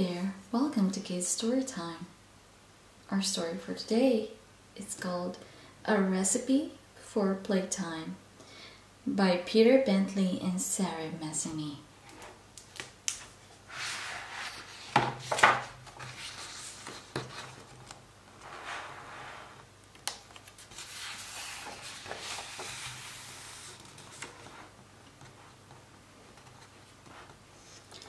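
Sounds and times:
book pages rustling: 12.0s - 19.1s, 19.9s - 28.0s.

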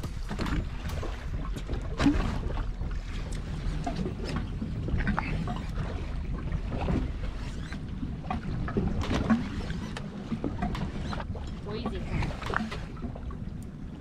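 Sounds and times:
water around boat: 0.0s - 14.0s
wind: 0.0s - 14.0s.

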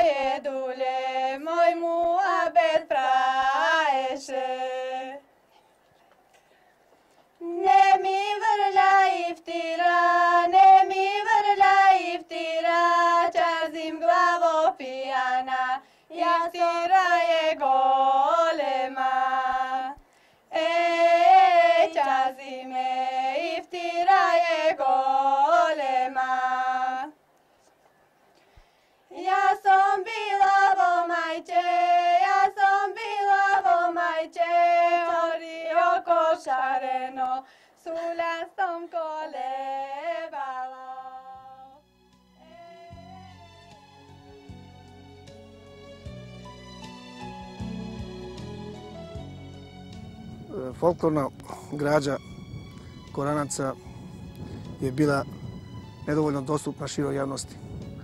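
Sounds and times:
woman singing folk song: 0.0s - 5.2s, 7.4s - 27.2s, 29.1s - 41.8s, 42.4s - 43.2s.

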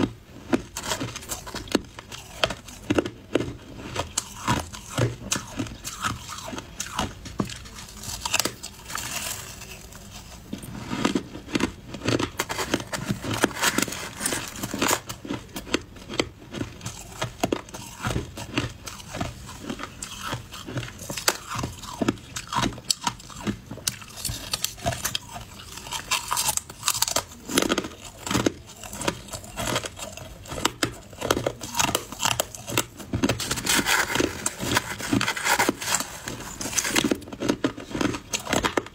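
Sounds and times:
chewing crunchy shaved ice: 0.0s - 38.9s.

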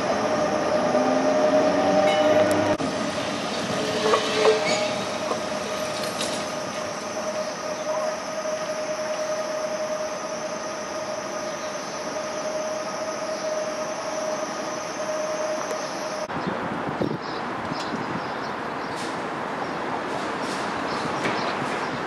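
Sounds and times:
tram motor whine: 0.0s - 16.3s
tram wheels rumbling on rails: 0.0s - 22.0s.

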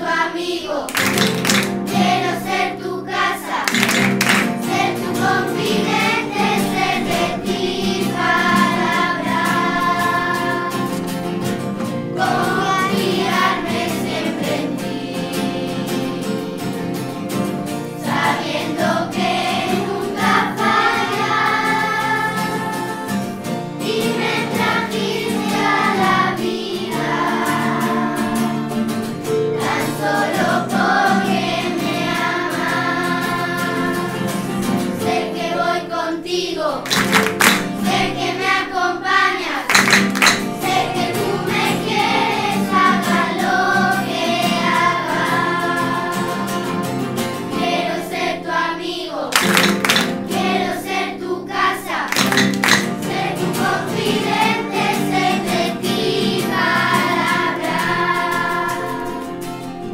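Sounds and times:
group of voices singing: 0.0s - 11.3s, 12.0s - 16.8s, 18.0s - 28.9s, 29.6s - 59.5s
sharp percussive hits: 0.9s - 1.9s, 3.7s - 4.7s, 36.9s - 37.8s, 39.7s - 40.7s, 49.4s - 50.3s, 52.1s - 53.1s
instrumental accompaniment: 0.9s - 35.7s, 36.8s - 38.6s, 39.2s - 48.3s, 49.3s - 59.9s.

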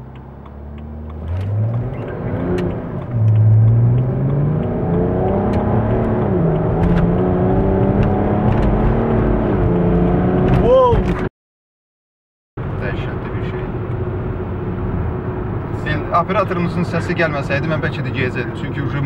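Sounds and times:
car engine accelerating hard: 0.0s - 10.6s.

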